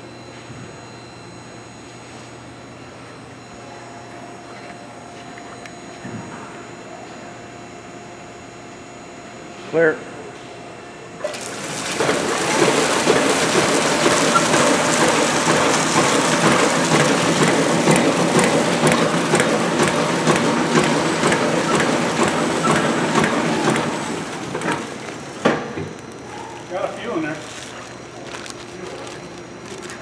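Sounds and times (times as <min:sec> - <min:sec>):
packaging machine rushing crackle: 0:11.2 - 0:25.4, 0:26.6 - 0:30.0.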